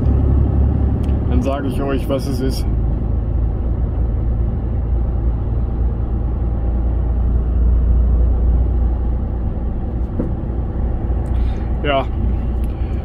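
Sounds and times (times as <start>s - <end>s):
truck engine and road rumble: 0.0s - 13.0s.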